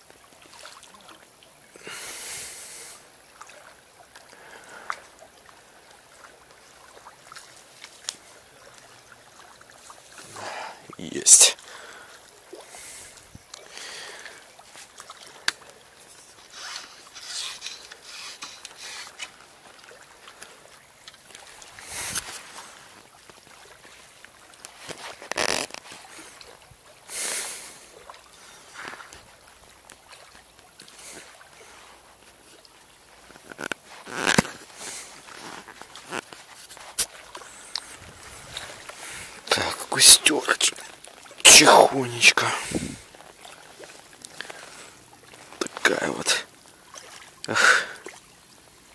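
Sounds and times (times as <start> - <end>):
rasping handling noises: 16.4 - 19.4.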